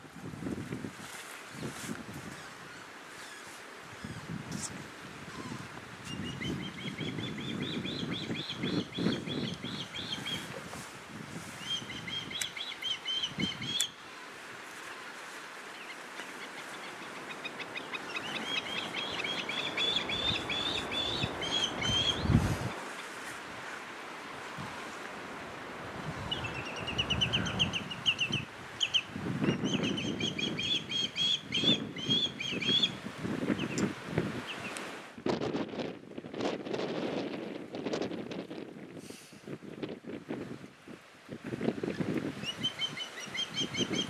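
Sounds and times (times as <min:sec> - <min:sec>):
bird fledgling begging calls: 0:17.0 - 0:22.3, 0:42.4 - 0:44.0.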